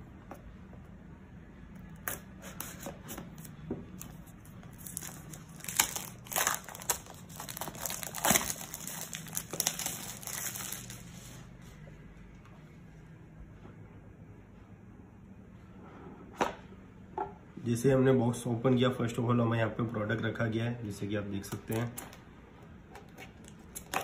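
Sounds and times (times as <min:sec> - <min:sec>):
plastic wrap crinkling and tearing: 0:04.6 - 0:11.4.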